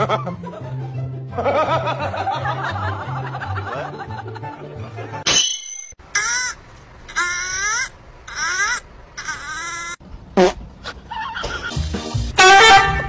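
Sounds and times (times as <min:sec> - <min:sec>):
voices and laughter: 0:00.0 - 0:05.2
music playing: 0:00.0 - 0:05.3, 0:11.7 - 0:13.0.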